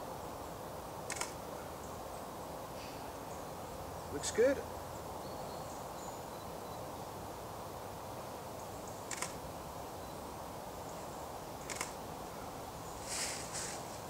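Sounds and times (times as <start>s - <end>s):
steady background hiss: 0.0s - 14.0s
camera shutter clicks: 1.1s - 1.4s, 9.1s - 9.4s, 11.6s - 12.0s.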